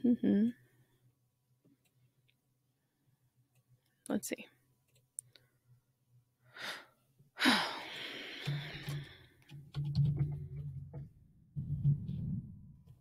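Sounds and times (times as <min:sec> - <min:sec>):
woman murmuring: 0:00.0 - 0:00.6
woman breathing: 0:06.4 - 0:09.5
woman sighing: 0:06.5 - 0:09.3.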